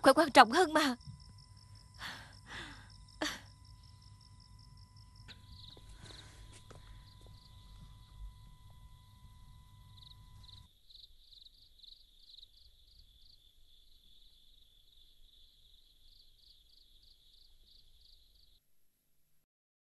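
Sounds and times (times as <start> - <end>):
low hum with thin tone: 0.0 - 11.4
crickets chirping: 0.0 - 18.6.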